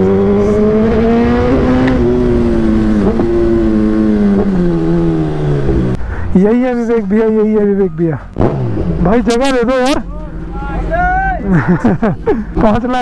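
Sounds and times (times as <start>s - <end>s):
motorcycle engine running: 0.0s - 6.0s.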